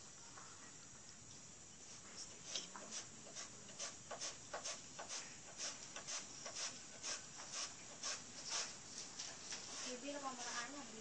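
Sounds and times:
knife scraping through bananas: 0:02.8 - 0:08.8.

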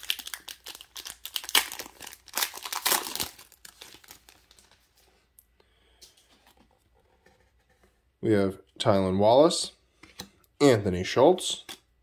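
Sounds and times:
plastic wrapper crinkling and tearing: 0:00.0 - 0:04.9.

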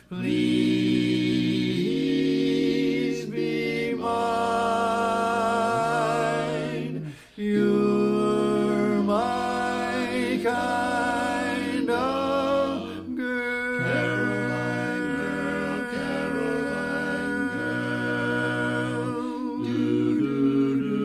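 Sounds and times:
male quartet singing harmony: 0:00.0 - 0:21.0.

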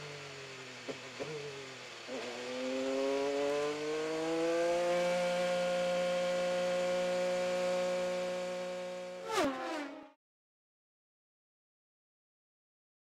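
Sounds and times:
race car engine at full throttle: 0:00.0 - 0:10.2.

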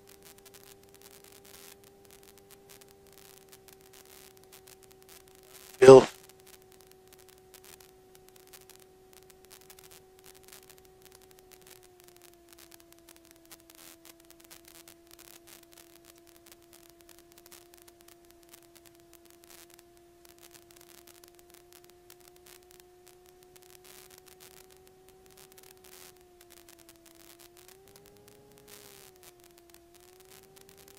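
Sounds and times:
faint steady intercom whine: 0:05.8 - 0:06.1.

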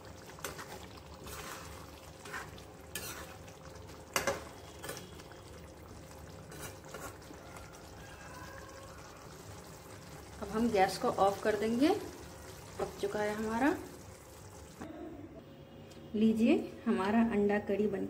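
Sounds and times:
gravy bubbling: 0:00.0 - 0:14.9
metal spoon scraping a pan: 0:00.3 - 0:05.2, 0:06.4 - 0:07.4.

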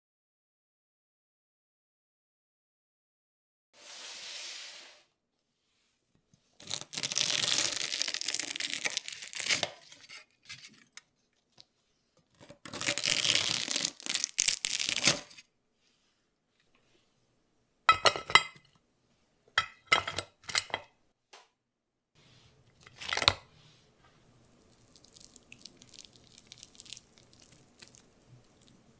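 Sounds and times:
metal spatula scraping baking mat: 0:03.8 - 0:05.0, 0:09.6 - 0:10.9.

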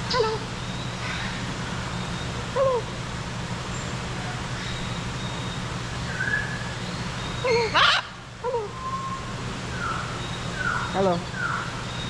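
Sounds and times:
steady low hum: 0:00.0 - 0:12.0
parrot chirping and calling: 0:07.4 - 0:09.2.

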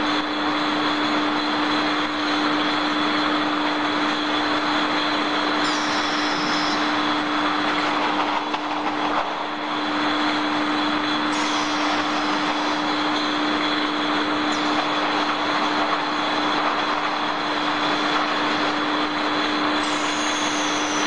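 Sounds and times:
low machinery hum: 0:00.0 - 0:21.0
thin high machine whine: 0:00.0 - 0:21.0
brief higher whine: 0:05.6 - 0:07.2.

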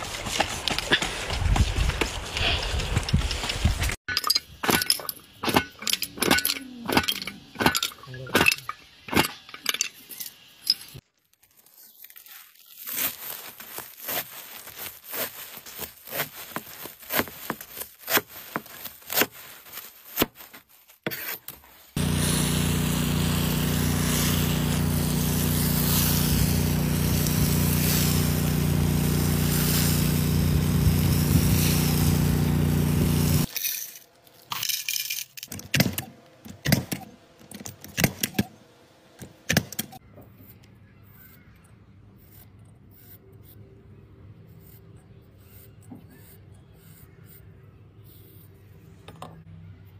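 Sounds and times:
knife slicing through woven mats: 0:12.1 - 0:22.0
hose spraying with loud hiss: 0:22.0 - 0:33.5
low hum: 0:22.0 - 0:33.5.

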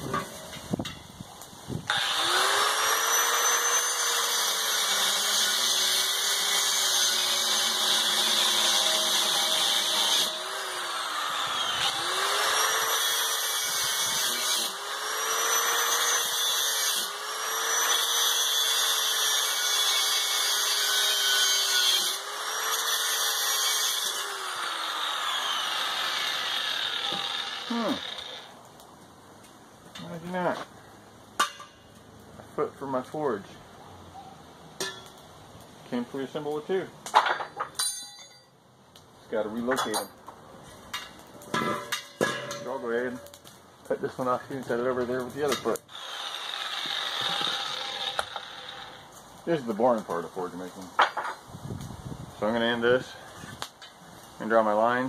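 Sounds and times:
angle grinder cutting steel: 0:01.9 - 0:28.6, 0:44.1 - 0:49.8.

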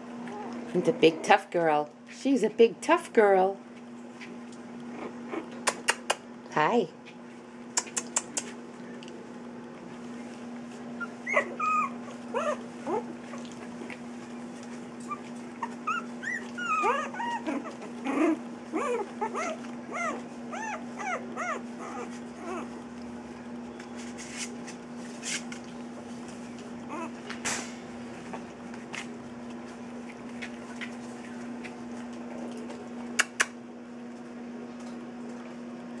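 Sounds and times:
steady low hum: 0:00.0 - 0:36.0
puppies squeaking and whimpering: 0:11.0 - 0:13.6, 0:15.0 - 0:22.8, 0:26.8 - 0:27.2.

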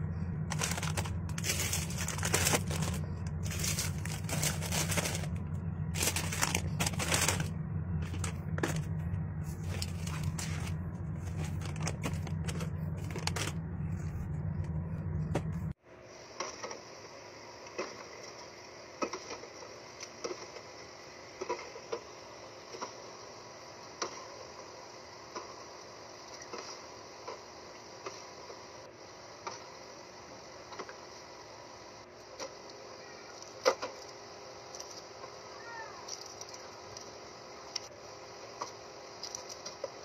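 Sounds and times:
low hum: 0:00.0 - 0:15.8
plastic bags crinkling: 0:00.5 - 0:08.9, 0:09.5 - 0:13.6.

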